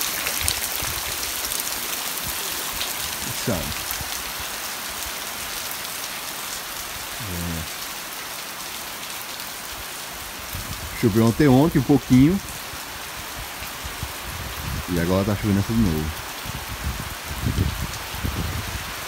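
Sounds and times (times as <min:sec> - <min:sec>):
rain on muddy ground: 0:00.0 - 0:19.0.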